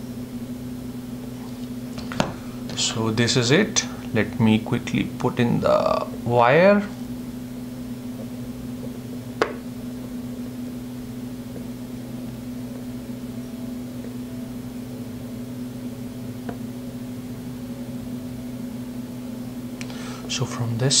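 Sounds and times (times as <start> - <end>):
electrical fan humming: 0.0 - 21.0.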